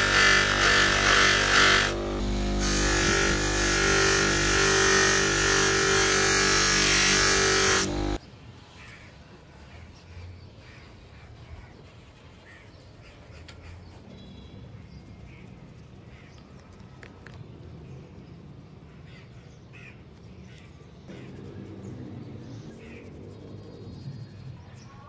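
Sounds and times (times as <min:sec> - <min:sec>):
bench grinder motor hum: 0:00.0 - 0:08.2
metal rubbing on buffing wheel: 0:00.0 - 0:08.2.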